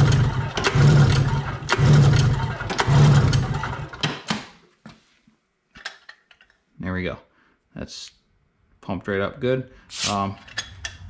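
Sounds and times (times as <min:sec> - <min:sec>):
engine cranking over: 0:00.0 - 0:04.4.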